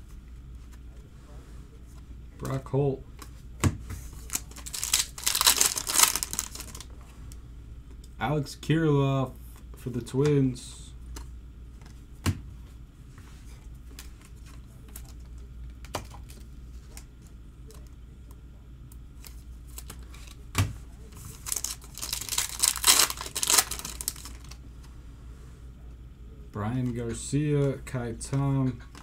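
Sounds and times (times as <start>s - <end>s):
foil wrapper crinkling and tearing: 4.2s - 6.9s, 21.2s - 24.6s.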